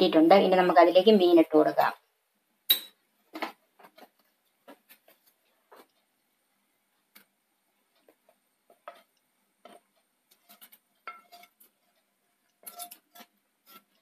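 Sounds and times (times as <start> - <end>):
spoon scraping a steel plate: 8.8 - 14.0.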